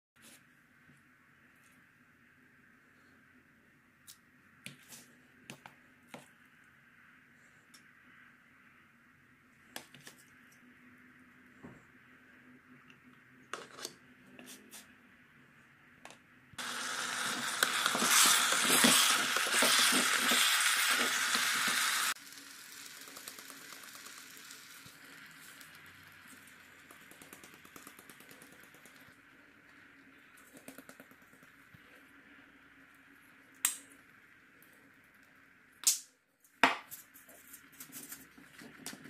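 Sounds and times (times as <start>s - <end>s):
kettle boiling with hissing bubbling: 16.4s - 36.1s.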